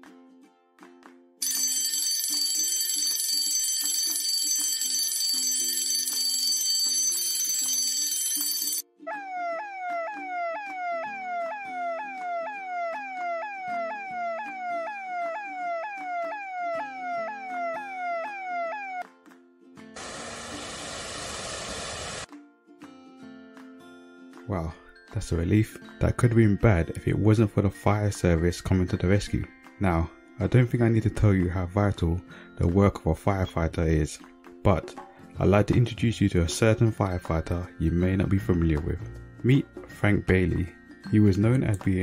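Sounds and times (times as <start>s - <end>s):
background music: 0.0s - 20.0s, 22.3s - 42.0s
alarm bell ringing: 1.4s - 8.8s
fire engine siren: 8.4s - 19.0s, 20.0s - 22.3s.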